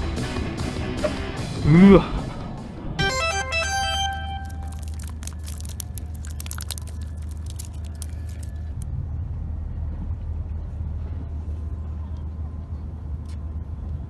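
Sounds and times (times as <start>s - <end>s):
low outdoor rumble: 4.8s - 14.0s.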